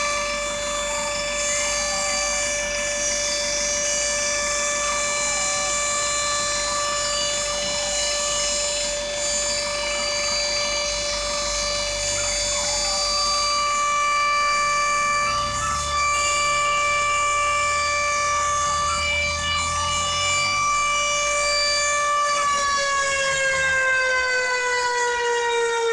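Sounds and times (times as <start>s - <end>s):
fire sirens steady tones: 0.0s - 25.9s
sirens wailing up and down: 0.0s - 25.9s.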